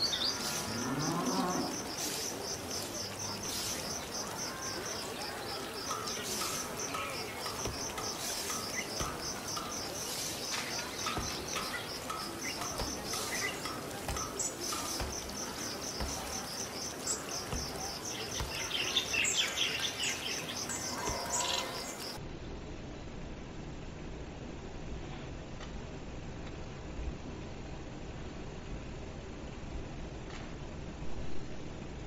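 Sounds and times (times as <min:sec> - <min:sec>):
birds chirping: 0:00.0 - 0:22.2
insects chirping: 0:00.0 - 0:22.2.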